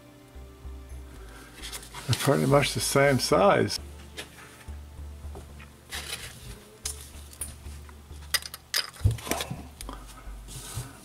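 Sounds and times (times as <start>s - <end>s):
low steady hum: 0.0s - 11.0s
metal handling clicks and knocks: 8.2s - 9.5s.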